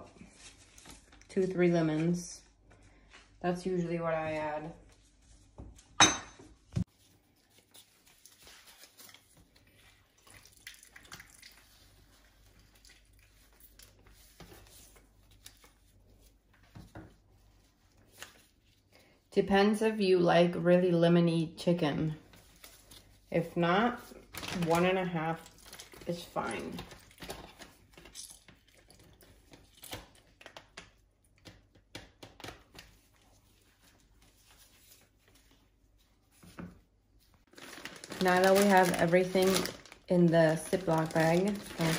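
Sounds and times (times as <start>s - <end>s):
lemon squishing and dripping: 6.9s - 16.2s
plastic bag rustling: 22.2s - 29.7s, 37.4s - 41.9s.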